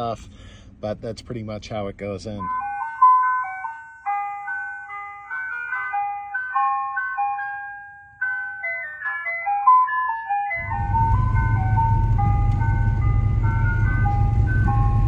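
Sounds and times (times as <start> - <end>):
ice cream truck jingle: 2.3 - 15.0
low vehicle rumble: 10.5 - 15.0.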